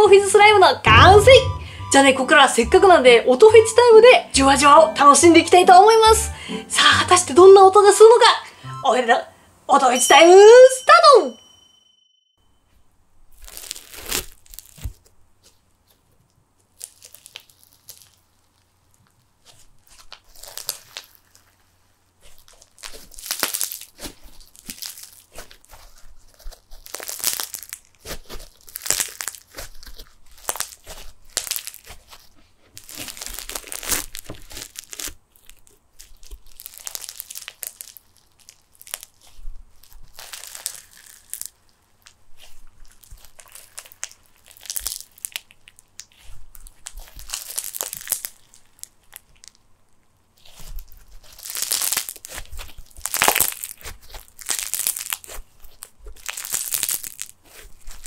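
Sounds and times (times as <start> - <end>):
slime fizzing and crackling: 16.7 - 18.7, 19.5 - 21.6, 22.2 - 26.0, 26.6 - 49.6, 50.4 - 58.0.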